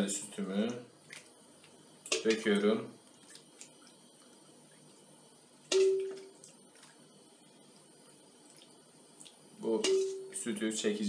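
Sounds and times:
metal ladle clinking on tray: 0:09.8 - 0:10.3.

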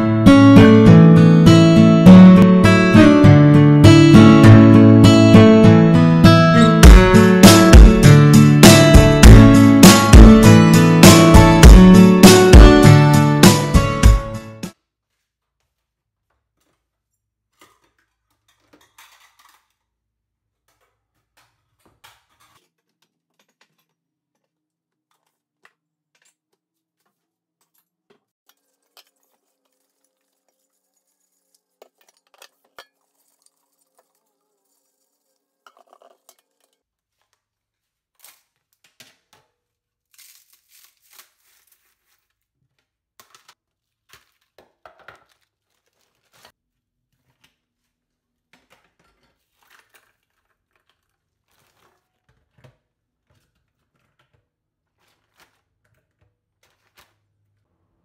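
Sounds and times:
plastic bag crinkling: 0:25.0 - 0:57.6.

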